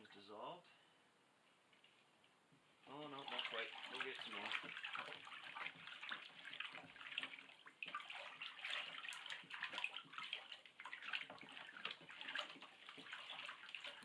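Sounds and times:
water sloshing in a plastic tub: 2.8s - 14.0s
wooden stick stirring water: 2.8s - 14.0s.

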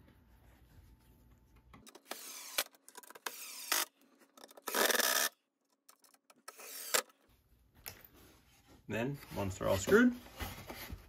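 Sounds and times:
screwdriver driving screw into wood: 1.9s - 5.3s, 6.0s - 7.1s.

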